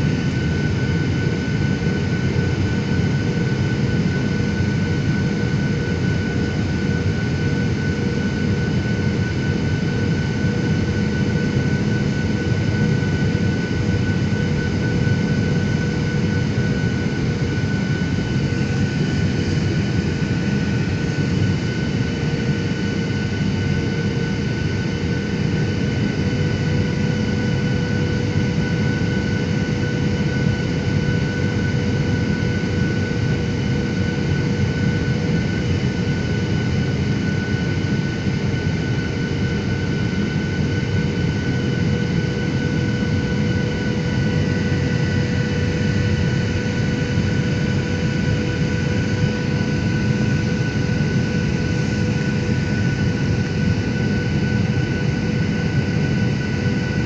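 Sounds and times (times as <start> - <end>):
jet engine and airflow rumble: 0.0 - 57.0.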